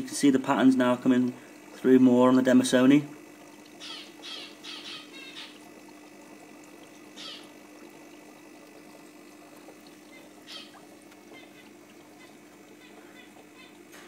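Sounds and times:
aquarium air pump hum: 0.0s - 14.0s
faint bubbling: 0.0s - 14.0s.

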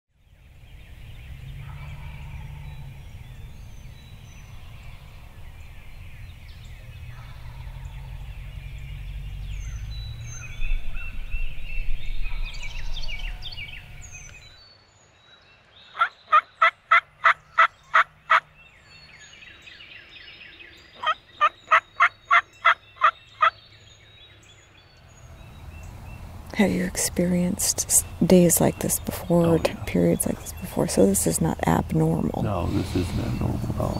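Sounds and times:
songbird chirps: 0.1s - 33.9s
low rumble: 0.3s - 14.6s
turkey yelping: 16.0s - 18.5s, 21.0s - 23.5s.

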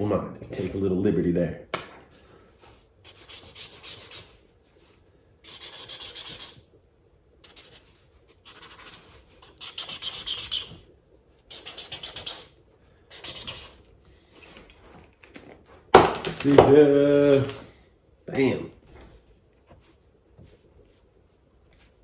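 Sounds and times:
marker scribbling on paper: 3.0s - 6.8s, 7.4s - 13.9s, 19.7s - 22.0s.

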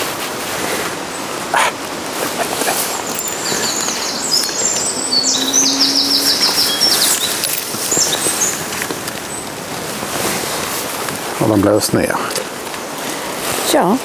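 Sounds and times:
steady outdoor hiss: 0.0s - 14.0s
songbird singing: 0.9s - 9.9s.

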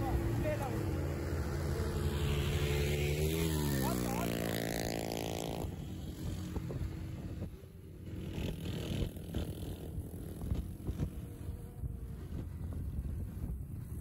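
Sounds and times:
motorcycle engines running: 0.0s - 14.0s
wind rumbling on microphone: 4.4s - 14.0s.

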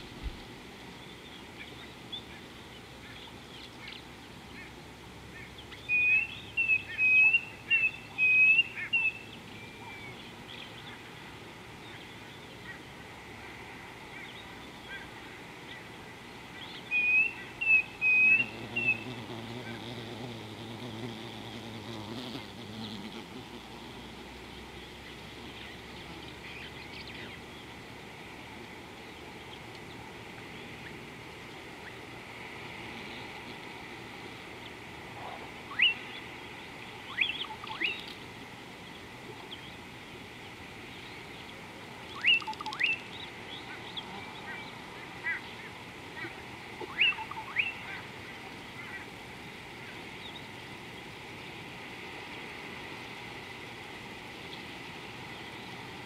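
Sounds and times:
outdoor background hiss: 0.0s - 56.0s
birds calling: 1.0s - 13.0s, 14.1s - 27.8s, 37.0s - 38.2s, 40.8s - 49.1s.

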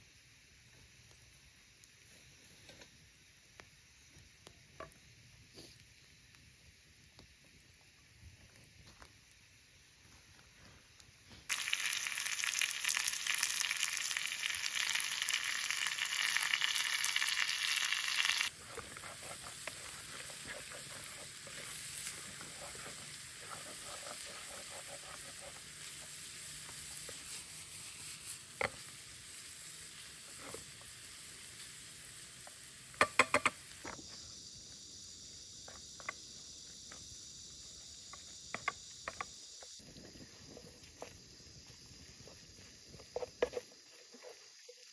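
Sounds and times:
meat sizzling in a frying pan: 11.5s - 39.0s
spatula stirring food: 18.4s - 28.8s
spatula tapping pan: 33.0s - 33.6s.

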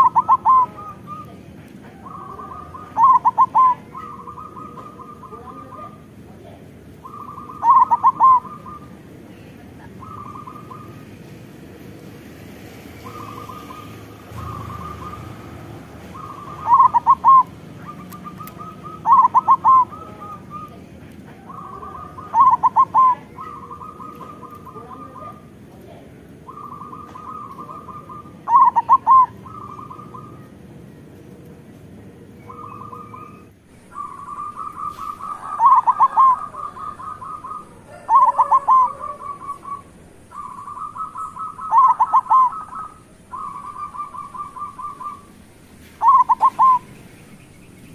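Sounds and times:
loud ringing bird notes: 0.0s - 1.3s, 2.0s - 6.2s, 7.0s - 9.0s, 13.0s - 20.7s, 26.4s - 30.6s, 32.4s - 45.4s, 46.0s - 47.9s
dove cooing: 0.0s - 11.8s, 12.8s - 47.1s.

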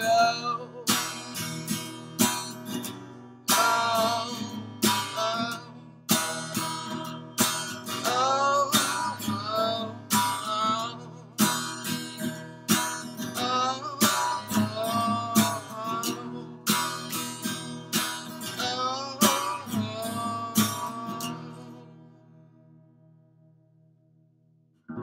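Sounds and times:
person singing: 0.0s - 1.6s, 3.5s - 7.1s, 7.8s - 11.8s, 13.2s - 17.1s, 18.4s - 22.0s
acoustic guitar strumming: 0.0s - 23.6s, 24.8s - 25.0s.

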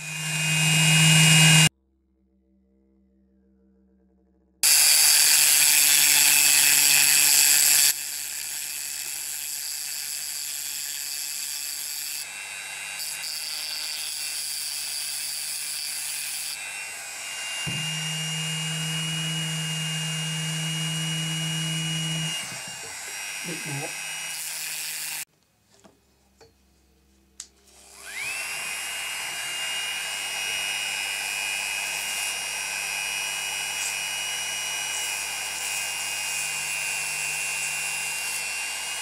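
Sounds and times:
rotary tool grinding metal: 0.0s - 1.7s, 4.6s - 25.3s, 27.7s - 39.0s.

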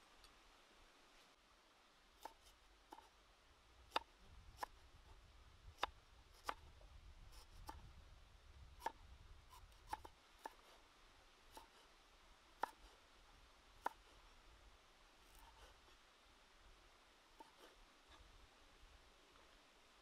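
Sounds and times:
faint low rumble: 0.0s - 20.0s
cleaver chopping on wooden board: 12.6s - 12.8s.

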